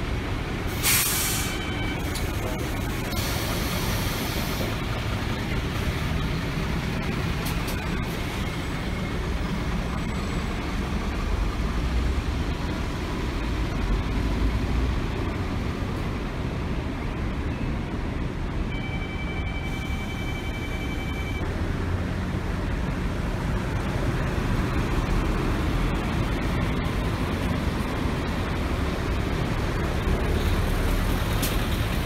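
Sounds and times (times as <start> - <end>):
bus engines rumbling: 0.0 - 32.0
bus pulling away: 0.0 - 32.0
short hiss: 0.7 - 1.6.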